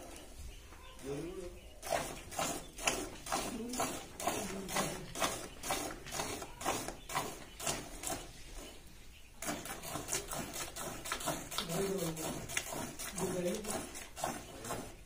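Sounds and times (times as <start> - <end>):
milk squirting into bucket: 1.8 - 8.6, 9.4 - 15.0.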